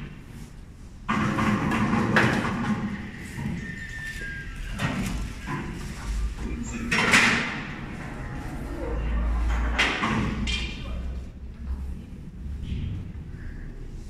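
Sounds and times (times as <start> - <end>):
pool balls clacking: 1.1 - 3.5.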